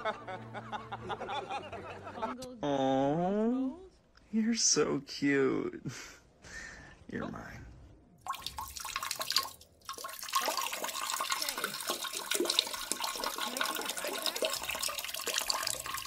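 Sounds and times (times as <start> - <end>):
water splashing in toilet bowl: 8.2 - 16.0.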